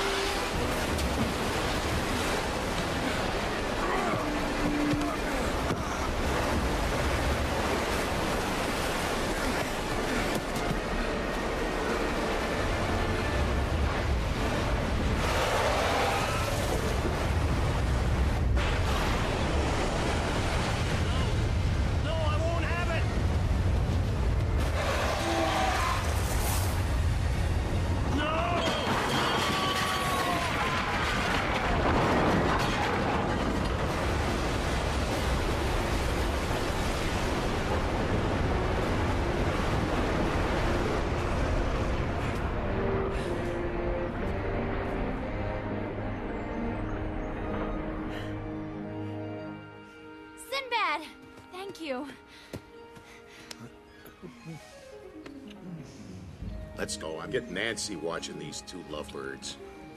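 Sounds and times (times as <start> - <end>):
heavy rumble and rushing: 12.4 - 29.6, 30.4 - 44.2.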